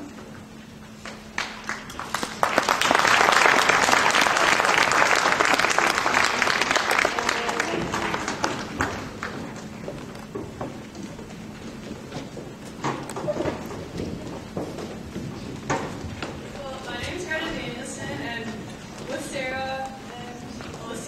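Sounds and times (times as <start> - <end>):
audience applauding: 1.0 - 10.9.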